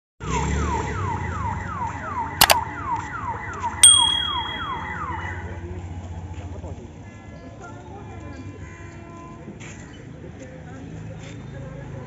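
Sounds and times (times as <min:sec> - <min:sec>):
level crossing warning siren: 0:00.3 - 0:05.6
sharp metallic clang: 0:03.8 - 0:04.9.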